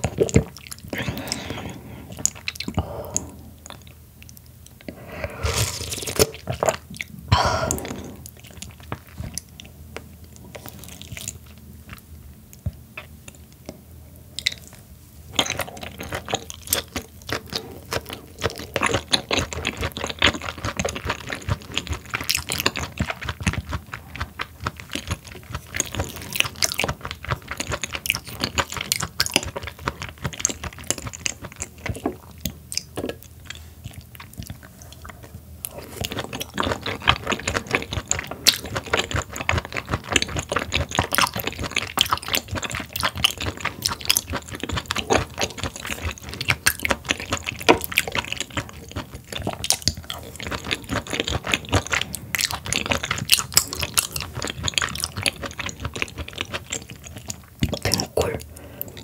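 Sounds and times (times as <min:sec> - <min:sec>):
wet mouth sounds: 0:00.0 - 0:09.6, 0:14.4 - 0:59.0.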